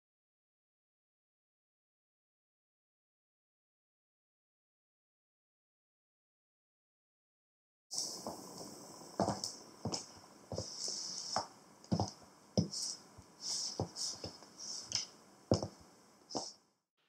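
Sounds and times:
high hiss: 7.9s - 16.6s
heels clicking on wooden floor: 8.0s - 16.6s.

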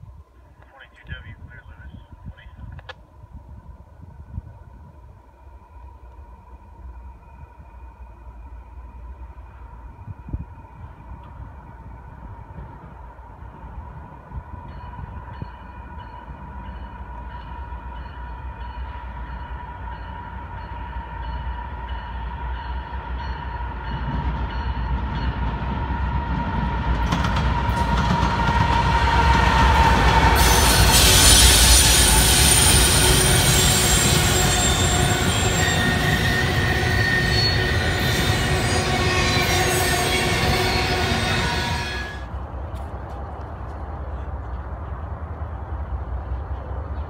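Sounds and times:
diesel locomotive rumble: 0.6s - 47.0s
steel wheels rushing on rail: 3.3s - 47.0s
high wheel squeal: 29.4s - 42.3s.

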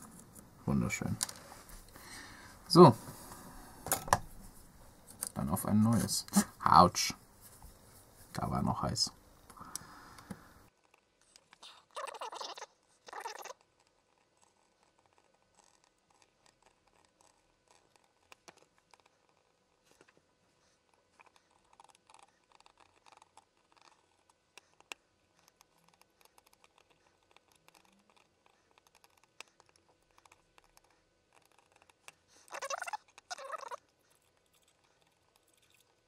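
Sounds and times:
faint clicks and scratches on metal: 13.7s - 32.3s.

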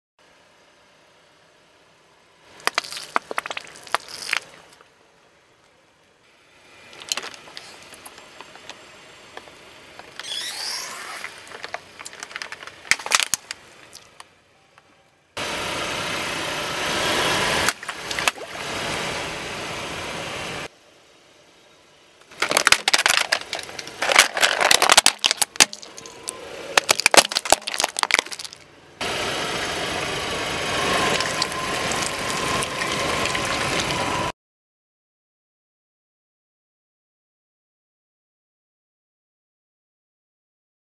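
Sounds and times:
tyre crushing small objects: 2.6s - 4.8s, 6.9s - 14.3s, 22.2s - 28.6s.

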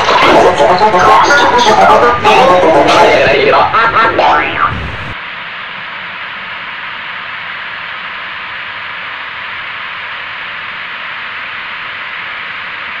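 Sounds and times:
television static hiss: 0.0s - 13.0s.

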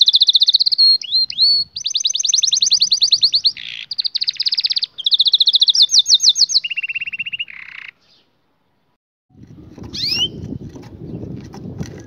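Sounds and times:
canary trilling song: 0.0s - 8.3s, 9.9s - 11.2s.

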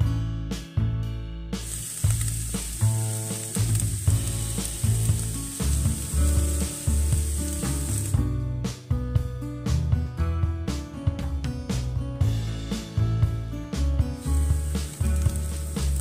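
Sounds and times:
background music: 0.0s - 16.0s
ground beef sizzling in pan: 1.6s - 8.2s, 14.2s - 16.0s.

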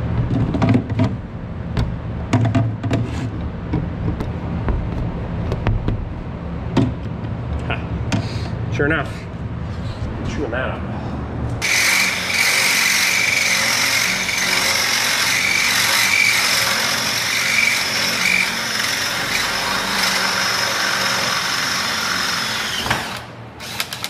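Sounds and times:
power drill whining: 11.6s - 24.0s.

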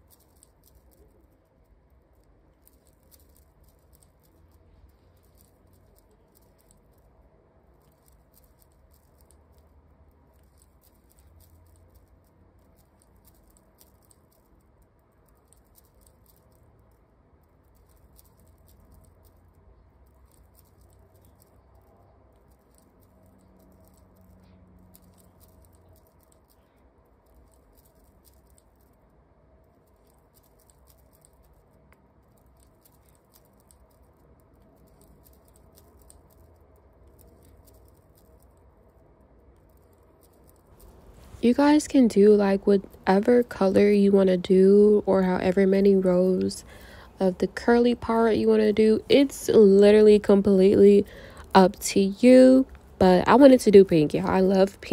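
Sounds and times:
crochet hook rustling and clicking: 0.0s - 29.0s, 29.8s - 38.8s, 39.5s - 54.9s
low hum: 34.4s - 54.9s.

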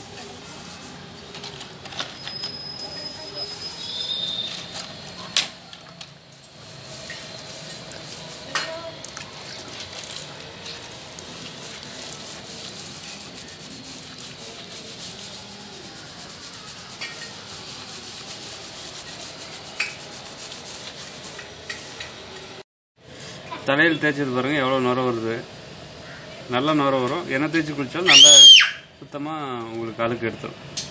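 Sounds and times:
hands rubbing lather into hair: 7.4s - 21.5s.

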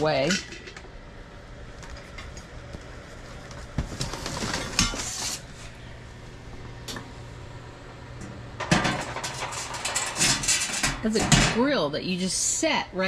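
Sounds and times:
metal grill grate clanking: 8.6s - 11.7s.

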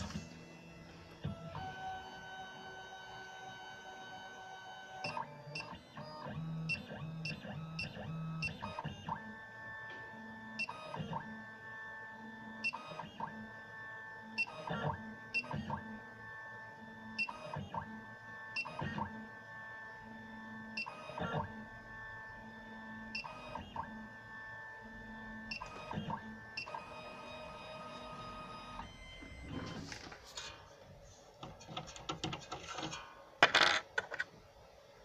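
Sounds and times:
key cutting machine motors whining: 25.0s - 29.9s.

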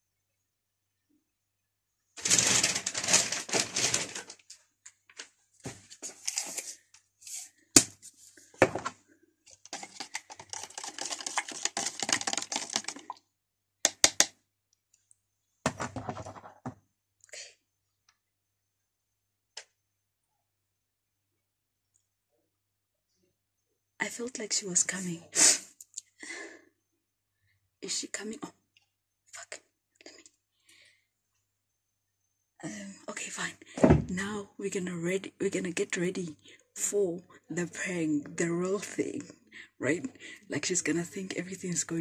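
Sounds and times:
spoon stirring in plastic cup: 9.5s - 13.2s.

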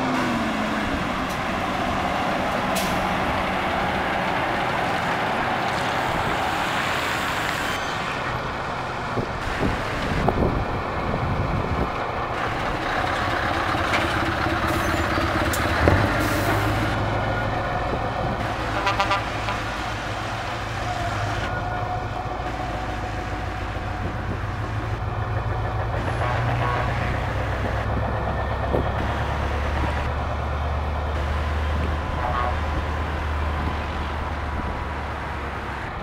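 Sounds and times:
diesel truck engines droning: 0.0s - 36.0s
truck horn toot: 18.7s - 19.8s, 26.0s - 27.3s, 32.1s - 32.8s.

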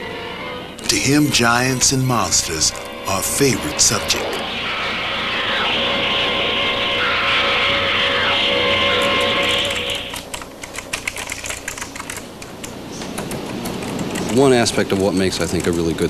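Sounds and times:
film soundtrack hissy din: 0.1s - 10.6s
keyboard typing: 9.0s - 16.0s.

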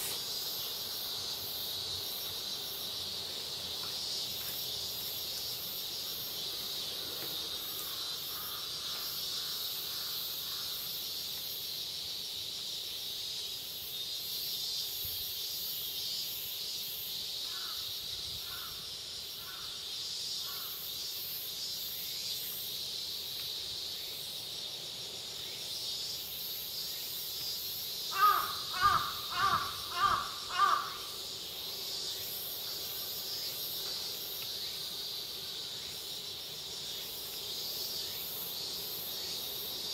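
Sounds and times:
high insect drone: 0.0s - 39.9s
crow cawing: 7.8s - 10.8s, 17.5s - 17.8s, 18.4s - 18.8s, 19.4s - 19.8s, 28.1s - 31.2s.

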